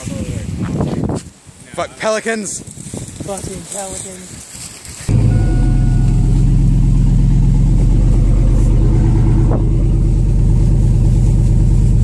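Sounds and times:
truck engine running at low speed: 0:05.1 - 0:12.0.

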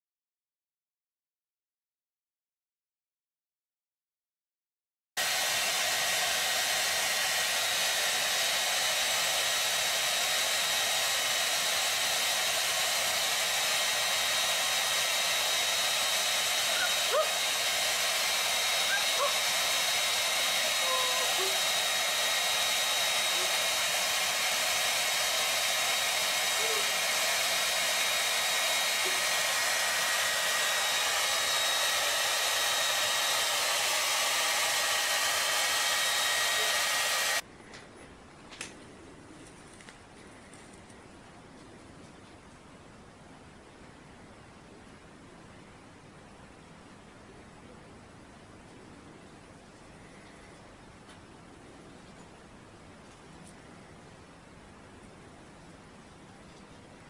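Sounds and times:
hair dryer running: 0:05.2 - 0:37.4.

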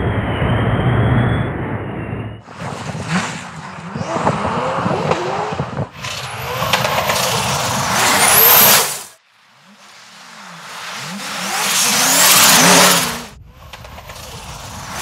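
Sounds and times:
car engine revving: 0:02.5 - 0:15.0
tyres on loose gravel: 0:05.9 - 0:15.0.

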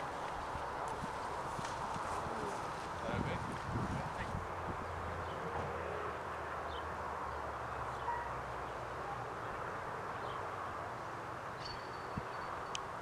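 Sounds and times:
faint high bird chirps: 0:11.6 - 0:12.8.

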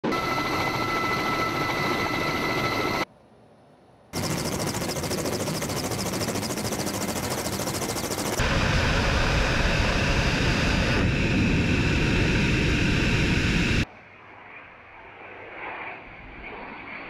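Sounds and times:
helicopter high whining tones: 0:00.0 - 0:03.1, 0:04.2 - 0:13.8
helicopter rotors chopping: 0:04.2 - 0:13.8.

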